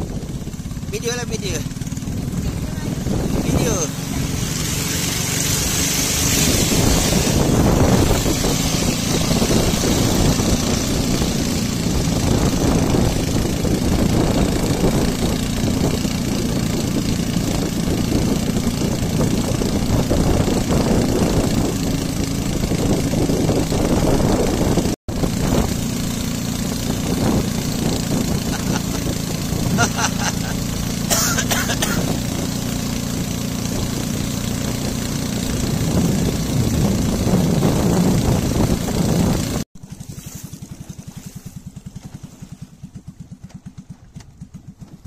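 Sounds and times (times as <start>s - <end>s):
water rushing past: 0.0s - 43.0s
boat engine running: 0.0s - 45.0s
wind rushing: 2.0s - 25.8s.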